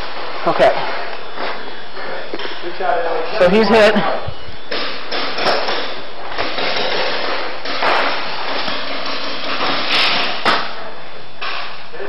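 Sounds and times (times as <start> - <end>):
steady hiss: 0.0 - 12.0
paintball markers firing: 4.7 - 10.8.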